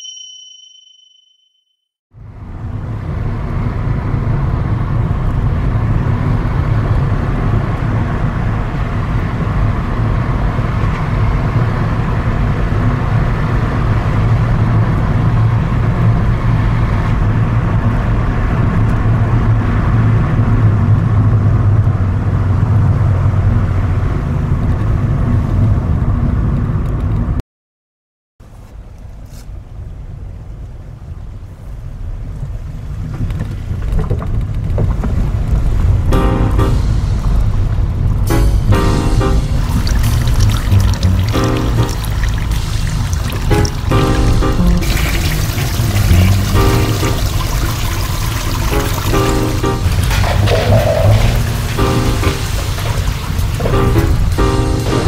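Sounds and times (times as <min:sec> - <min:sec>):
road and tyre noise: 0:02.1 - 0:27.4, 0:28.4 - 0:55.0
car engine hum: 0:28.8 - 0:55.0.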